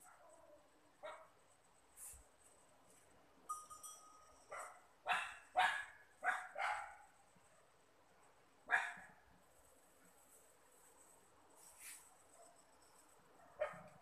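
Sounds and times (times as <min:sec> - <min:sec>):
dog barking: 0:00.0 - 0:01.3, 0:04.5 - 0:07.1, 0:08.7 - 0:09.1, 0:13.4 - 0:14.0.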